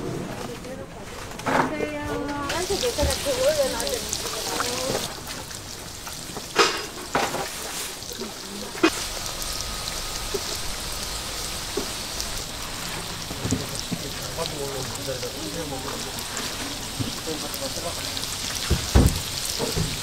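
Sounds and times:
food sizzling in oil: 2.4s - 20.0s
knocks on cooking surface: 18.6s - 20.0s.

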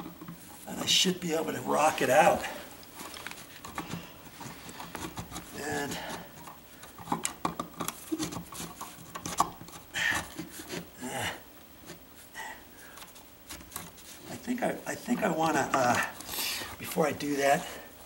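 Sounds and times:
plastic scraping against drywall: 0.0s - 10.9s.

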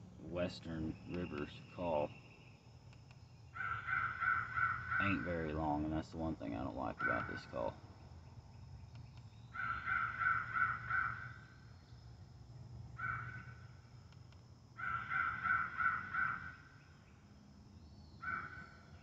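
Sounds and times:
electronic crow call caws: 3.5s - 5.4s, 9.5s - 11.5s, 13.0s - 13.6s, 14.8s - 16.7s, 18.2s - 18.9s.

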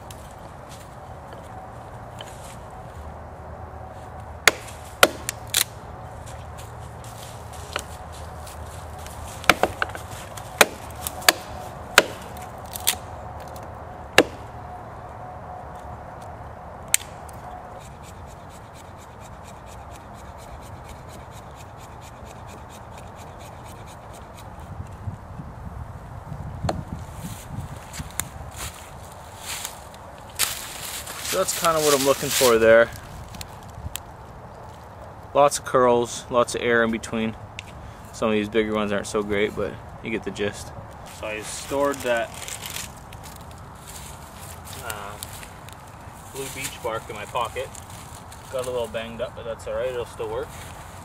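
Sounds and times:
axe splitting sticks: 4.4s - 5.8s, 9.0s - 14.5s, 16.9s - 24.4s.

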